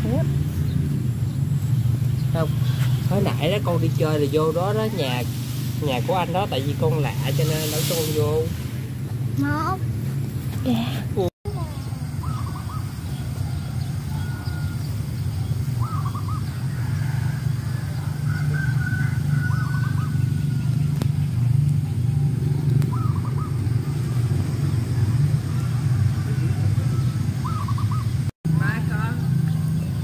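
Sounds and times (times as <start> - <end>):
steady low rumble: 14.7 - 30.0.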